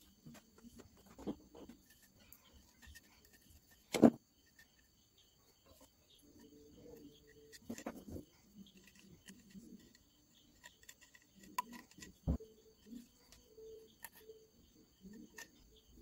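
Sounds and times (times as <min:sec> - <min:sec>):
tube handling clicks and rubs: 0:06.9 - 0:14.3.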